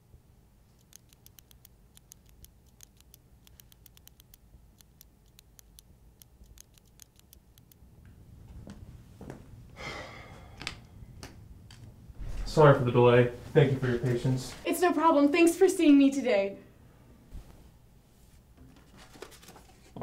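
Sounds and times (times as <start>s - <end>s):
fingernails clicking: 0.8s - 7.8s
heavy footsteps: 12.2s - 14.6s.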